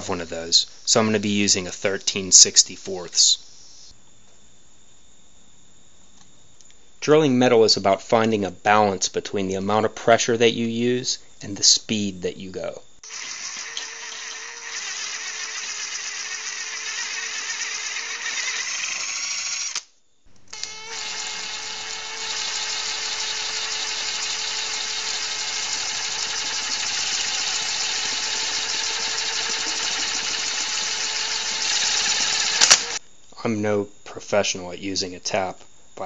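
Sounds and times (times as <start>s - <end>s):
drill press cutting metal: 13.0s - 19.8s, 20.5s - 33.0s.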